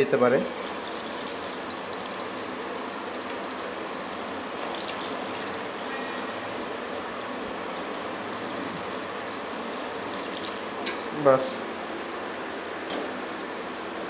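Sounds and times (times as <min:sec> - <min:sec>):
water pouring through strainer: 0:00.5 - 0:03.3, 0:04.2 - 0:05.8, 0:09.9 - 0:10.8.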